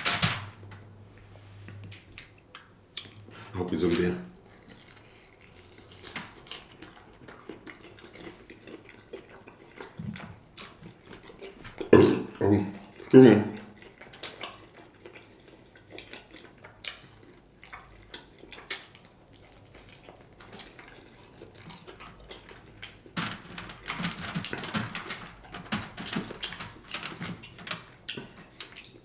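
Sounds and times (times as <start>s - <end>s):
chewing with wet mouth clicks: 2.1s - 3.3s, 3.9s - 23.2s, 26.4s - 29.0s.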